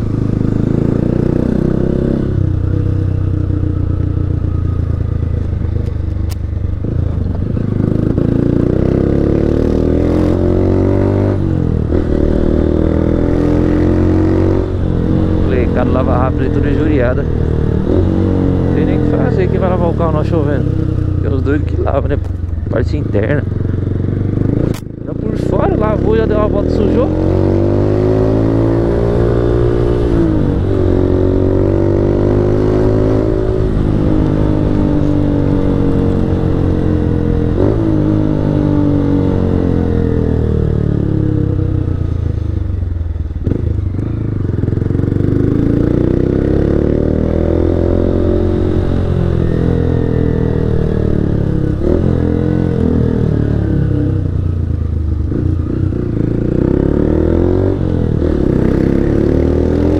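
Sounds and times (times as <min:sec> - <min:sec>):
motorcycle engine changing gears: 0:00.0 - 0:42.4.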